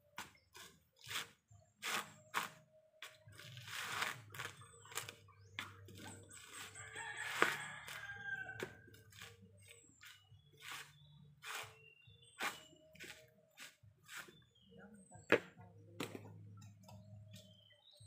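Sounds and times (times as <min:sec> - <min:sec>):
rooster crowing: 0:06.8 - 0:08.9.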